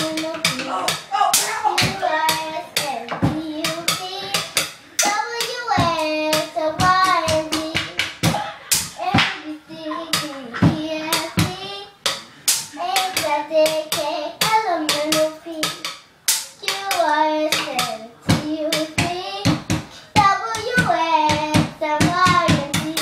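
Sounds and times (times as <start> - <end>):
child singing: 0.0 - 12.1, 12.7 - 16.0, 16.6 - 23.0
drumsticks knocking on wood: 10.1 - 23.0.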